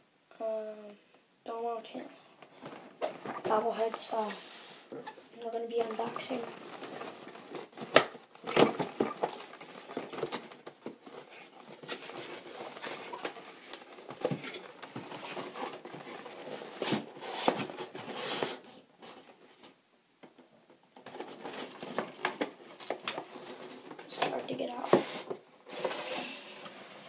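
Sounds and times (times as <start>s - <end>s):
cardboard box scraping and rustling: 8.6s - 18.8s, 24.8s - 27.0s.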